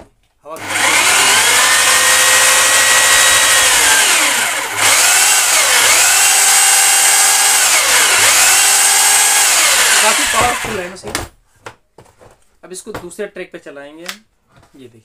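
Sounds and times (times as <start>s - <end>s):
hammer drill motor whine: 0.6s - 10.9s.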